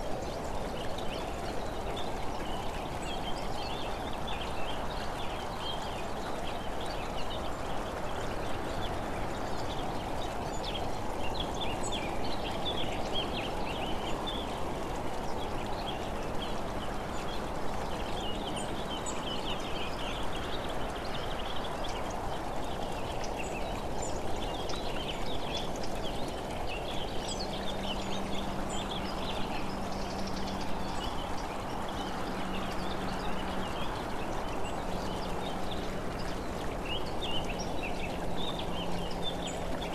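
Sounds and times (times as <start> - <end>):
road noise: 26.2 - 39.9.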